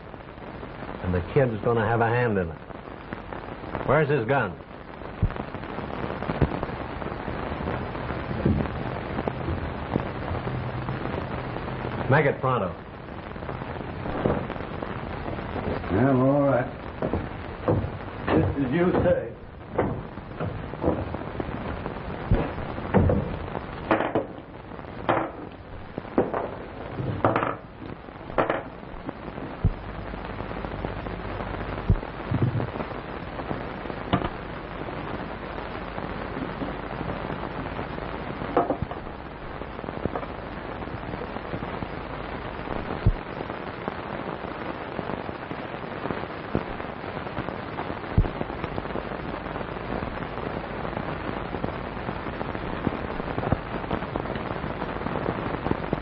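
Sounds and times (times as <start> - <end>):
film soundtrack hiss and crackle: 0.0 - 56.0
sharp knocks and clicks: 17.0 - 19.1, 19.7 - 21.1.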